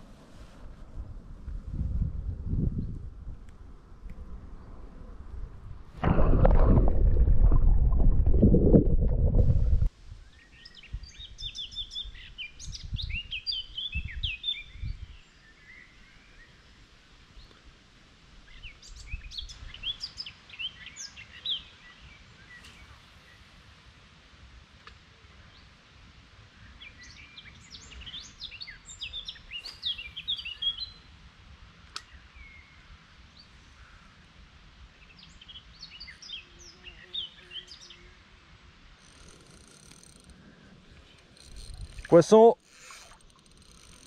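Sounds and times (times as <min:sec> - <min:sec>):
loud rushing rumble: 0:06.0 - 0:09.9
low thumps: 0:06.0 - 0:09.9
small birds chirping: 0:26.7 - 0:31.1, 0:35.0 - 0:38.3.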